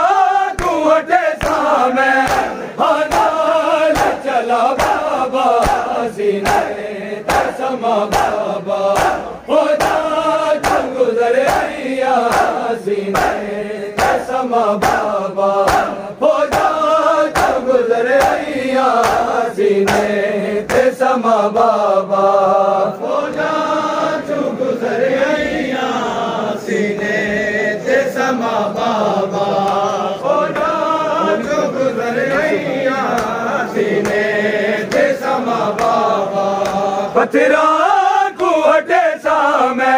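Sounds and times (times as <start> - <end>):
men chanting together: 0.0 - 39.9
hands slapping chests: 0.5 - 21.1, 29.6 - 30.8, 32.2 - 36.9.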